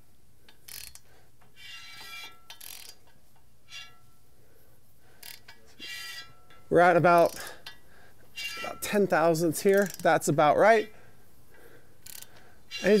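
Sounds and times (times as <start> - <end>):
ratchet wrench clicking: 0.5 - 3.9, 5.2 - 6.6, 7.2 - 7.8, 9.6 - 10.1, 12.0 - 13.0.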